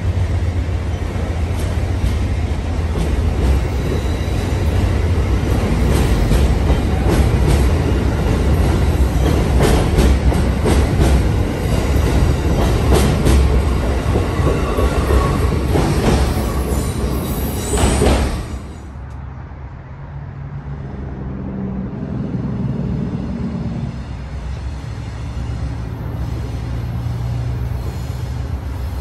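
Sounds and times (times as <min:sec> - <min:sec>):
train wheels rumbling on rails: 0:00.0 - 0:19.3, 0:20.8 - 0:29.0.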